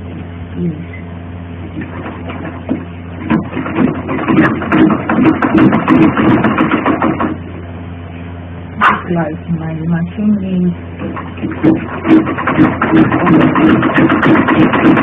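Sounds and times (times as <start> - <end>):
sewing machine stitching: 11.5 - 15.0.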